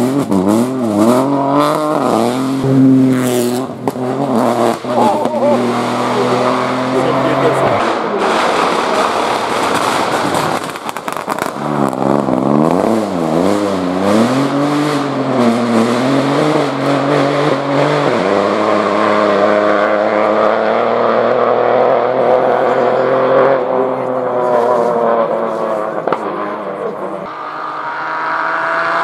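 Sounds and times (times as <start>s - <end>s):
rally car engine revving: 0.0s - 29.0s
exhaust pops and crackles: 7.7s - 12.4s.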